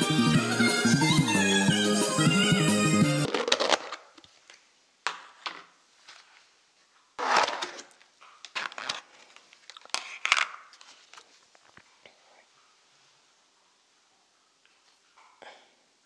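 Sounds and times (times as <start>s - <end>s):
plastic containers crackling: 3.3s - 4.4s, 7.2s - 11.8s.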